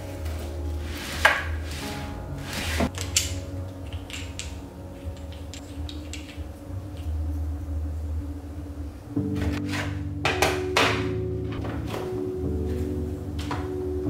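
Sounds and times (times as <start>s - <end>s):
packing supplies rustling: 0.0s - 3.4s
quiet background music: 0.0s - 14.0s.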